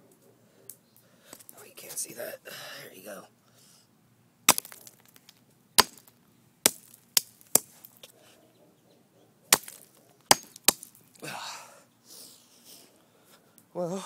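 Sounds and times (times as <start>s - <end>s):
hammer striking frozen can: 5.8s - 6.1s, 9.5s - 10.9s.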